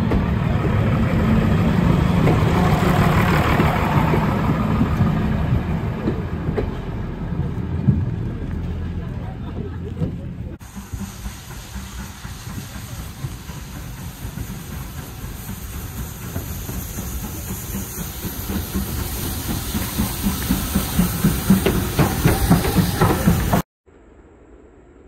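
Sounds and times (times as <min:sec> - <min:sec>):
steam locomotive approaching: 0:00.0 - 0:23.7
steam hiss: 0:10.6 - 0:23.7.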